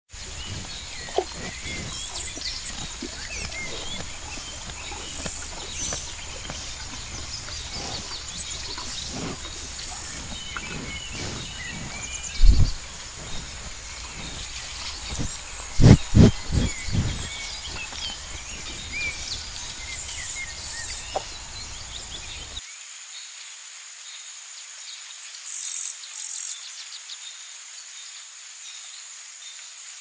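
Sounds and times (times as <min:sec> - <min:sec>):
birds chirping: 0:00.1 - 0:22.6.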